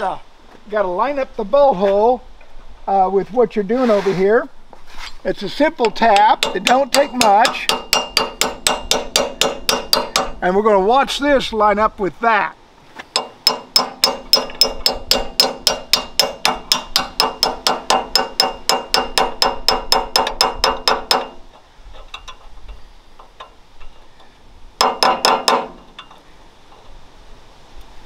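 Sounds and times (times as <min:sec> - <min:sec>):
hammer striking metal: 0:05.8 - 0:10.4, 0:13.2 - 0:21.4, 0:24.8 - 0:25.9.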